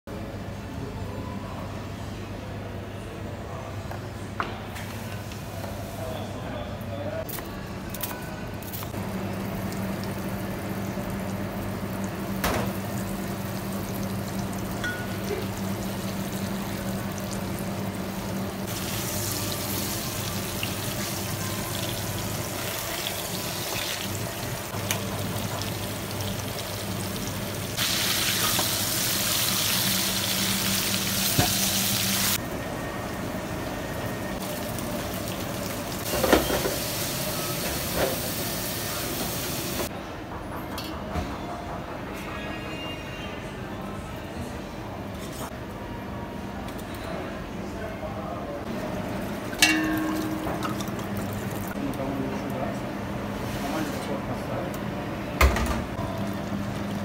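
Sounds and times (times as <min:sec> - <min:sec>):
low kitchen hum: 0:00.1 - 0:57.0
meat sizzling in a pan: 0:25.0 - 0:32.4.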